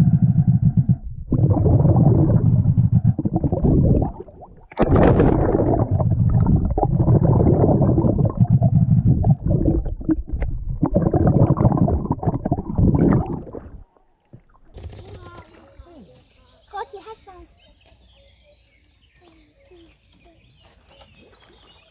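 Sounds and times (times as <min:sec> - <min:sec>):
underwater bubbles gurgling: 0:00.0 - 0:14.8.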